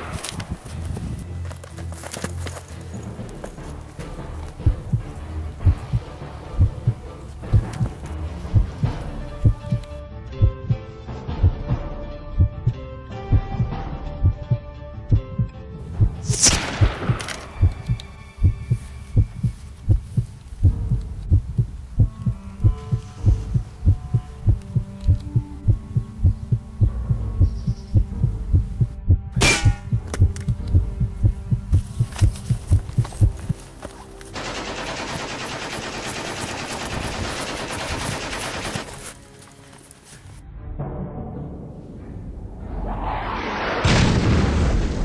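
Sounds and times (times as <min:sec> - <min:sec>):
pulsing low heartbeat beat: 0:04.6 - 0:33.6
machine-gun fire: 0:34.4 - 0:39.0
sweeping whoosh: 0:42.0 - 0:45.0.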